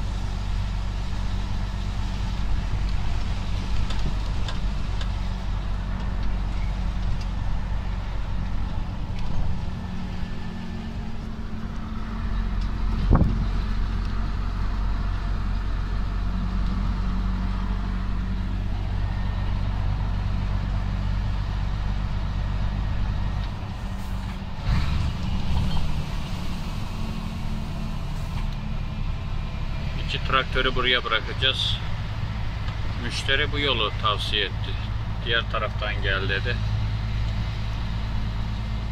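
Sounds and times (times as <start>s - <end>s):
truck diesel engine running: 0.0s - 38.9s.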